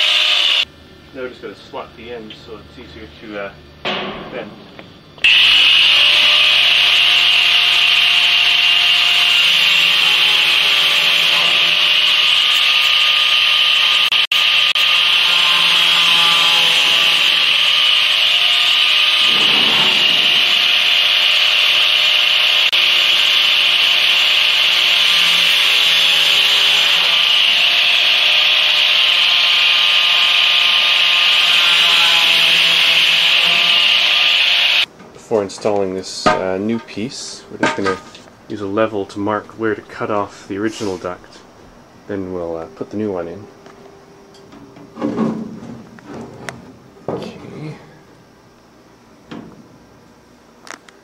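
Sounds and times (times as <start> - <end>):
angle grinder cutting metal: 0.0 - 0.7, 5.2 - 34.9.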